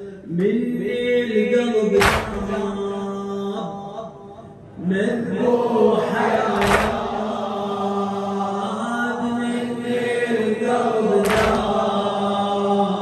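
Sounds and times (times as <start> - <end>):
men chanting a lament: 0.0 - 13.0
chest slaps in unison: 2.0 - 2.8, 6.5 - 7.2, 11.2 - 11.8.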